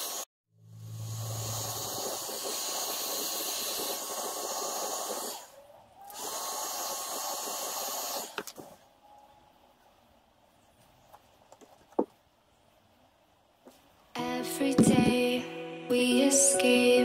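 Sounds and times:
heat gun blowing hot air: 0.0s - 5.5s, 6.1s - 8.7s.

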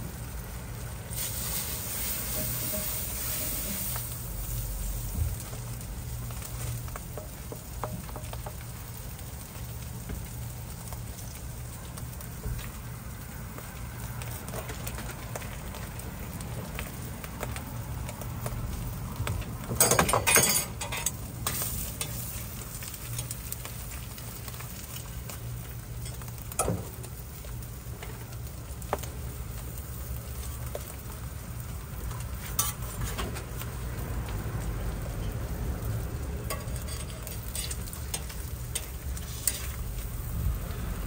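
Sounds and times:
food sizzling on griddle: 0.0s - 41.0s
metal spatula scraping griddle: 1.1s - 4.6s, 19.8s - 22.4s, 32.4s - 33.5s, 36.5s - 40.0s.

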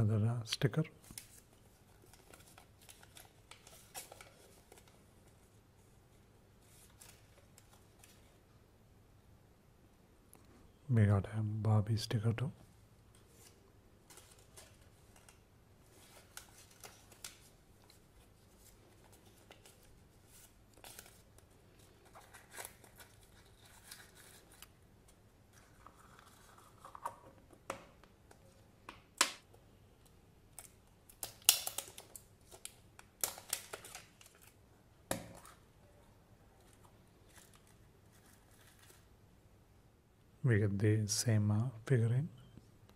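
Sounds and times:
paper rustling: 1.0s - 5.6s, 13.2s - 27.2s, 36.6s - 39.1s
plastic clicks and snaps: 28.9s - 34.0s.

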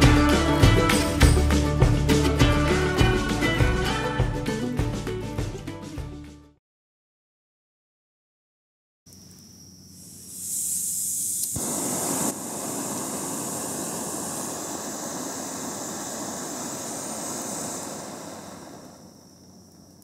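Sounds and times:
gas hissing from valve: 10.0s - 19.9s
stove flame rushing: 10.0s - 19.9s.

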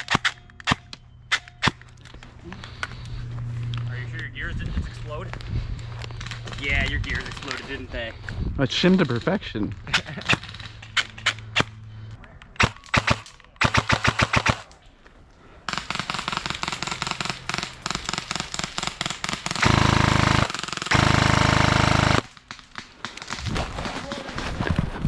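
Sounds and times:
airsoft guns firing: 9.9s - 11.8s, 12.6s - 14.8s, 15.7s - 24.5s.

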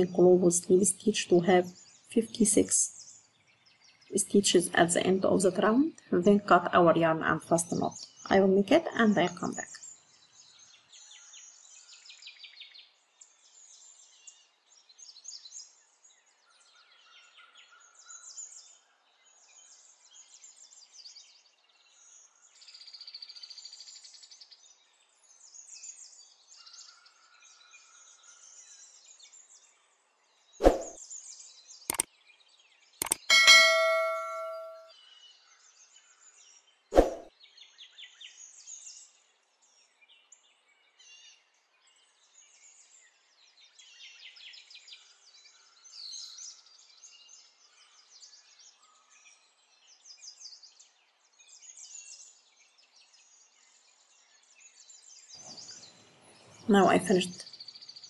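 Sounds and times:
faint bird chirping: 33.0s - 34.9s
loud metallic ding: 33.3s - 34.9s.

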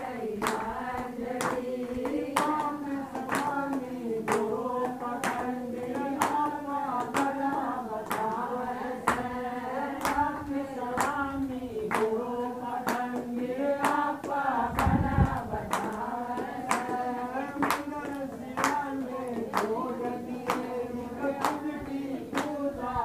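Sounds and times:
women singing in unison: 0.0s - 23.0s
hands clapping in time: 0.4s - 9.3s, 9.9s - 22.6s.

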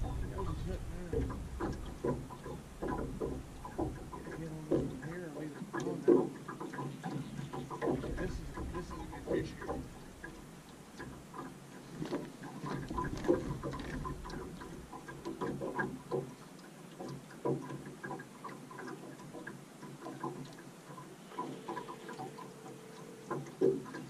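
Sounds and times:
steady low hum: 0.0s - 6.1s, 7.9s - 12.0s.

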